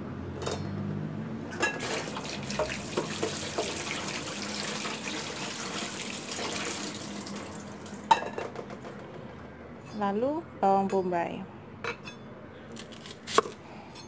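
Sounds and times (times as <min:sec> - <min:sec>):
tap water splashing into sink: 0:01.8 - 0:07.9.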